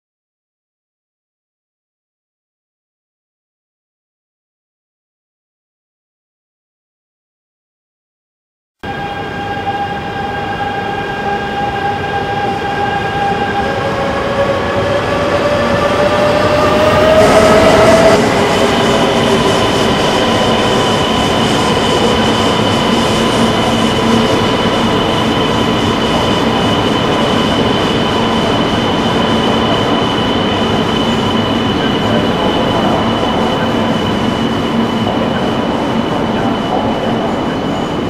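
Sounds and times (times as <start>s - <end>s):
high-pitched whine: 8.8s - 38.0s
train rolling on rails: 8.9s - 38.0s.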